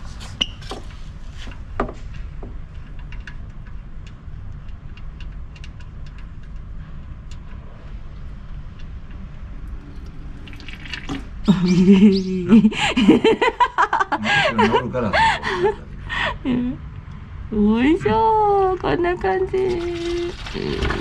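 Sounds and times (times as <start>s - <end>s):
oil dripping and pouring: 9.4s - 11.5s
voices exclaiming and laughing: 11.5s - 16.8s.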